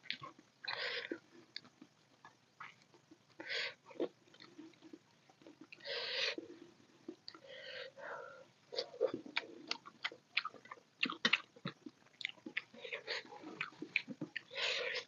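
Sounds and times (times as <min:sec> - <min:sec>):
chewing and wet mouth sounds: 0:08.7 - 0:15.0.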